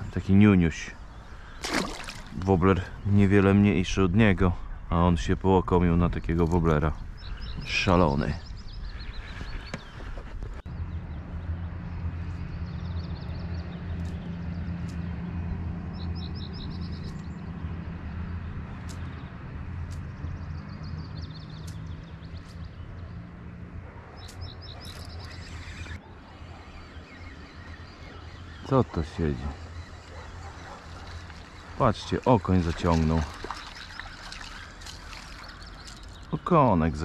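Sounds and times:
birds chirping: 0.0s - 37.0s
steady low hum: 10.6s - 34.1s
sharp ticks: 16.9s - 17.3s, 18.7s - 20.4s.

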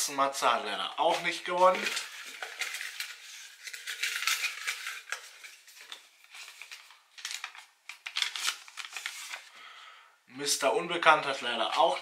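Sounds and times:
paper crinkling and rustling: 1.0s - 9.5s.

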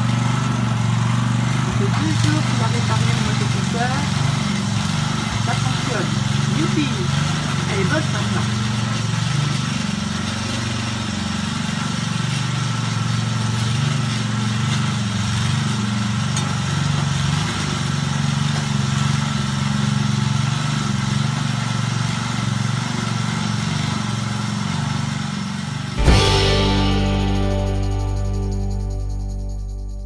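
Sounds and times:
garden tiller engine running: 0.0s - 21.4s.

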